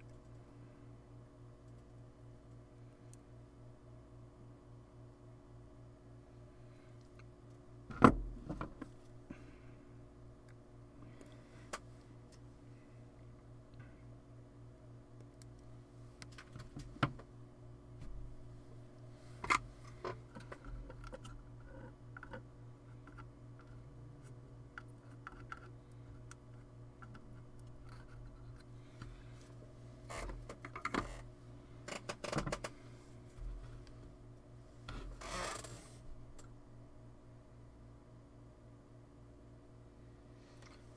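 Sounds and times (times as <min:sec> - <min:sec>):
low electrical hum: 0:00.0 - 0:40.9
rustling scrape: 0:35.1 - 0:36.1.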